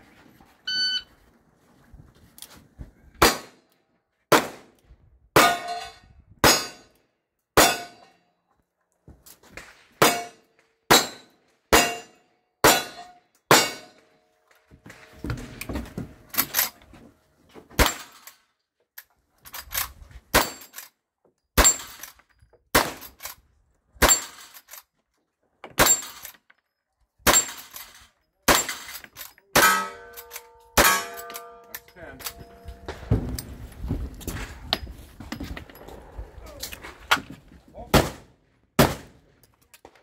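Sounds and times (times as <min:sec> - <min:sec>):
steel plates ringing: 0:29.6 - 0:33.2.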